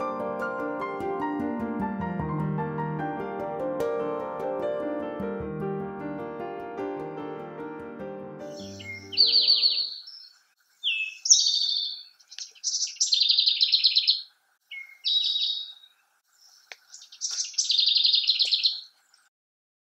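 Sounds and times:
piano music: 0.0 - 10.0
songbird trilling: 8.5 - 19.2.

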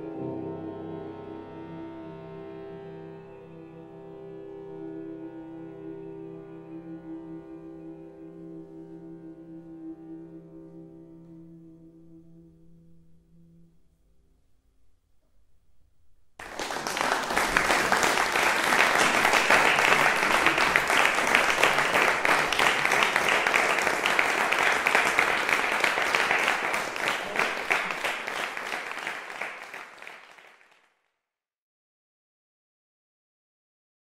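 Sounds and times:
audience applauding: 16.4 - 30.9.

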